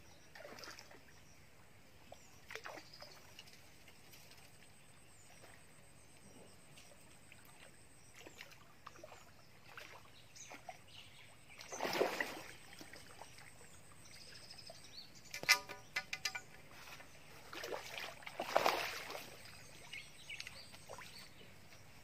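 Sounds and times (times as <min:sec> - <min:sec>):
sharp click: 0:15.2 - 0:16.5.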